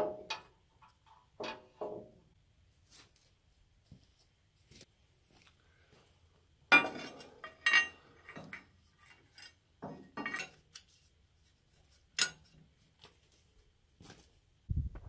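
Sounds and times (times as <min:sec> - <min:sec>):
steel parts clinking and clanking: 0:06.7 - 0:10.9, 0:12.2 - 0:12.6.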